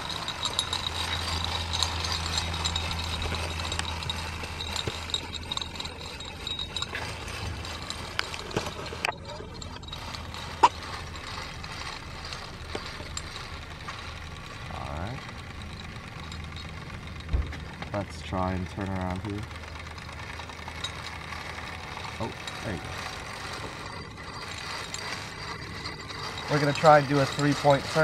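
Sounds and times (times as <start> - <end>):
low hum: 0.0 - 28.0
toy steam engine rattling: 0.0 - 28.0.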